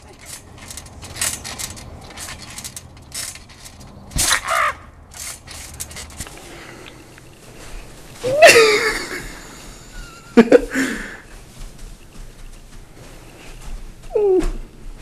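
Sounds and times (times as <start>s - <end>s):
person crying out: 8.2s - 9.3s.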